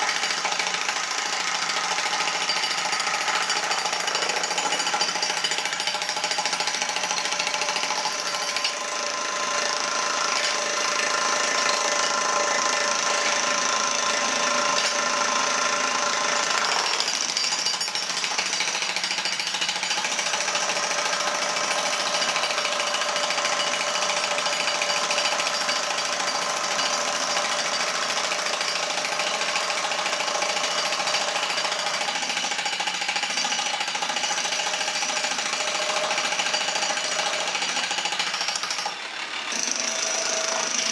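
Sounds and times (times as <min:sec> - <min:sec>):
demolition breakers pounding concrete: 0:00.0 - 0:08.8.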